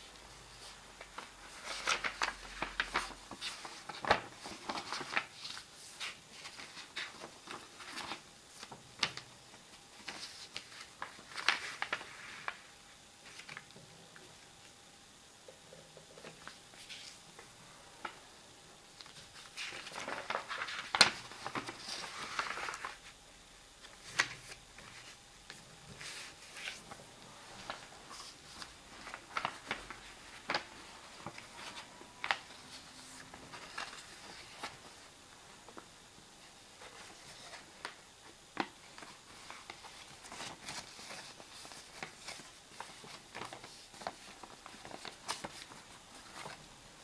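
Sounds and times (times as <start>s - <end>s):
paper rustling and folding: 0.0s - 14.3s, 16.1s - 18.3s, 19.0s - 23.2s, 23.8s - 47.0s.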